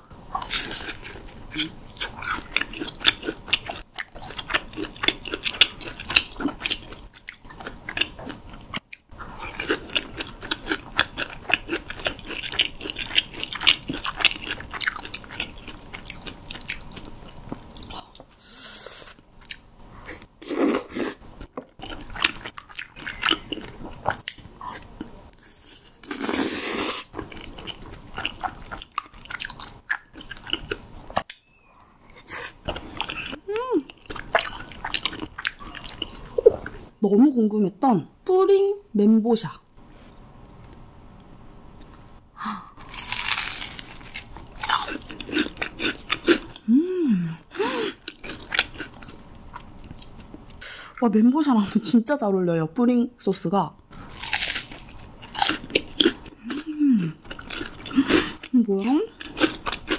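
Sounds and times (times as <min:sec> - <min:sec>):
crunchy chewing: 0:32.1 - 0:36.8, 0:42.8 - 0:46.6, 0:47.9 - 0:50.3, 0:54.0 - 0:58.5, 0:59.1 - 0:59.9.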